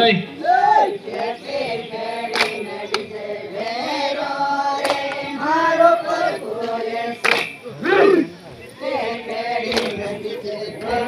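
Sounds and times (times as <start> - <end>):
group singing in chorus: 0.4 - 11.0.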